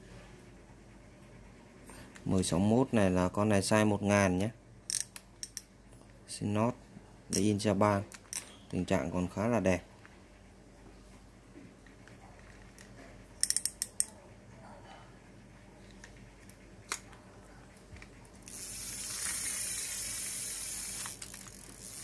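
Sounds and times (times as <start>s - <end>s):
fishing reel clicks: 4.9s - 5.7s, 13.4s - 14.1s, 18.4s - 22.0s
fishing reel cranking whir: 18.4s - 22.0s.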